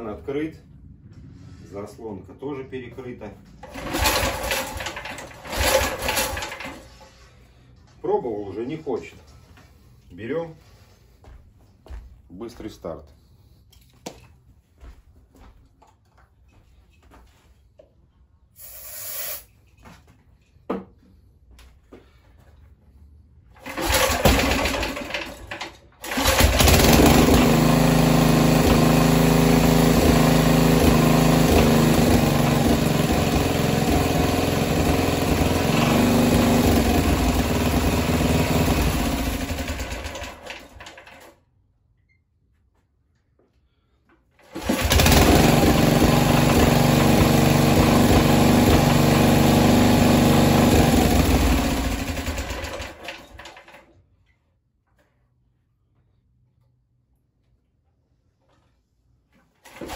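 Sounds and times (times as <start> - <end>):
petrol engine starting and running: 3.4 - 7.9, 23.5 - 41.4, 44.4 - 54.0, 59.6 - 59.9.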